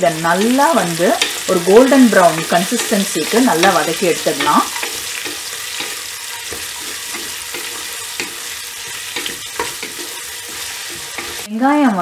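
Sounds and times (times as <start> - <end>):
onions sizzling in oil: 0.0 - 11.8
wooden spoon scraping pot: 1.1 - 11.5.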